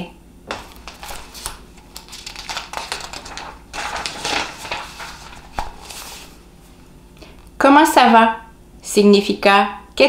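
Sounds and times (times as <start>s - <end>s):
sketchbook pages rustling: 0.5s - 6.4s.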